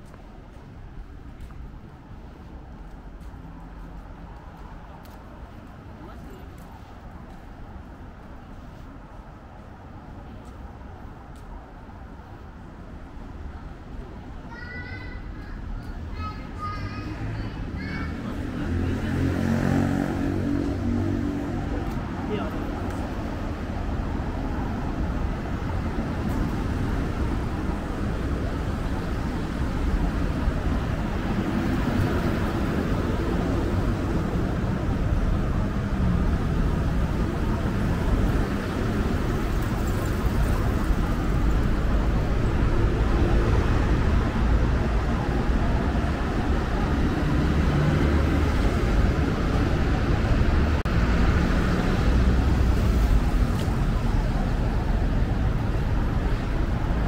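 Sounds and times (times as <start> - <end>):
passing cars rumble: 15.0 - 57.0.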